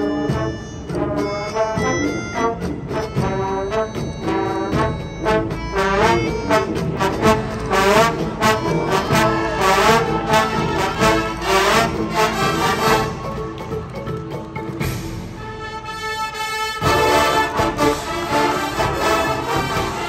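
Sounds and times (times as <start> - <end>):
brass playing sustained chords: 0.0 - 13.4, 15.4 - 20.0
accented percussion hits: 0.0 - 16.0.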